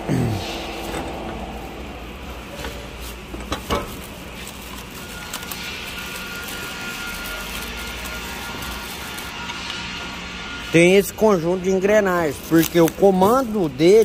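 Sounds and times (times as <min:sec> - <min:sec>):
steady background noise: 0:00.0 - 0:14.0.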